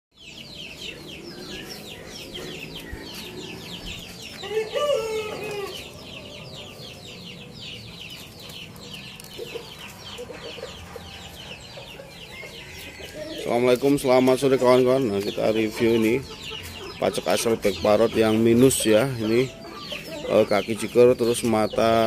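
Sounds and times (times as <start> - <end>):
chicks peeping: 0.2 - 22.0
loud chicken call: 4.4 - 6.0.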